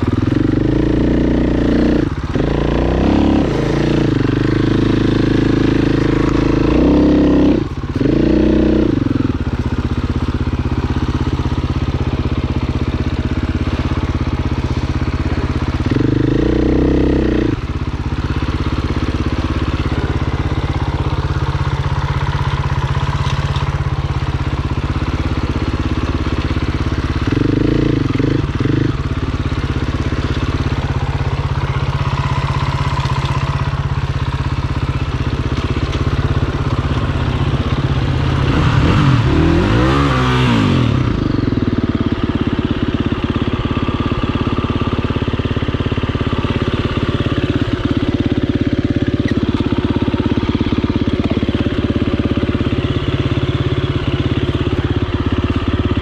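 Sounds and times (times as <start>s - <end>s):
dirt bike engine revving: 0.0s - 9.6s, 10.6s - 41.8s.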